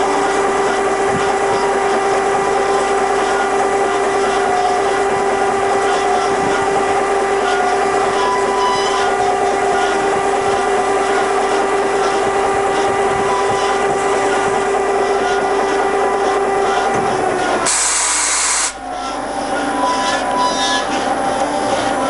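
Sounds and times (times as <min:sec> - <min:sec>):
loud hiss: 0:17.7 - 0:18.8.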